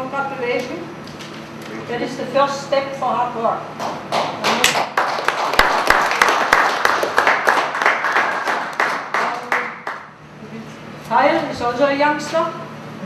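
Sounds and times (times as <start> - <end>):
audience applauding: 3.8 - 10.1.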